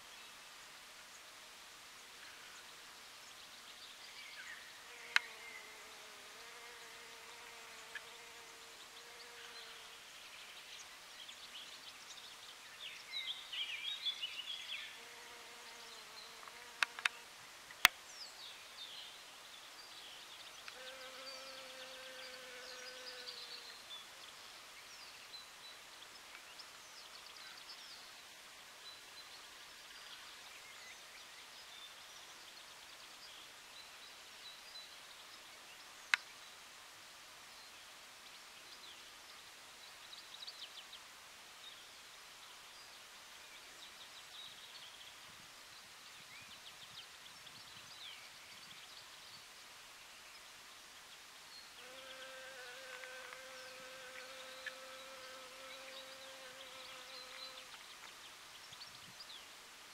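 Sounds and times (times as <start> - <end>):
honeybee buzzing: 20.8 - 23.3, 51.8 - 57.7.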